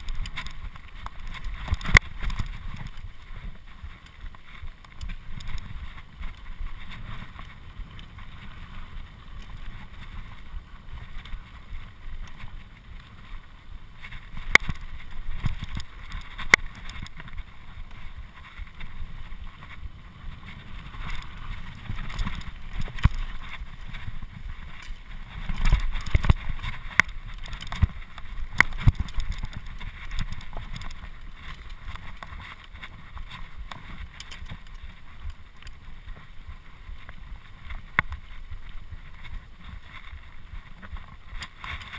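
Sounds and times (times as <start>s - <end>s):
bike knocking and rattling: 0.0s - 41.9s
bike tyres rumbling on dirt: 0.0s - 41.9s.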